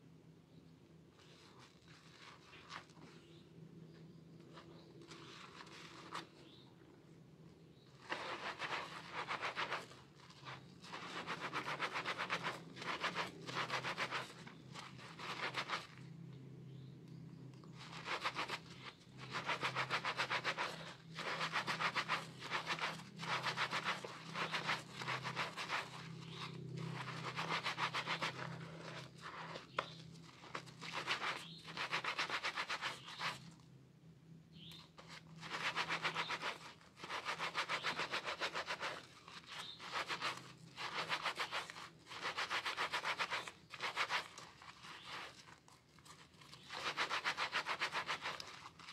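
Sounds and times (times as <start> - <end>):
soapy hands rubbing lather: 19.2 - 33.3.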